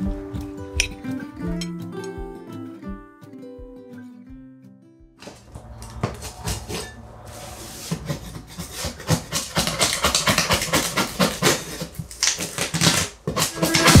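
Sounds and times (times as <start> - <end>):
metal scraper scraping wall: 5.3 - 14.0.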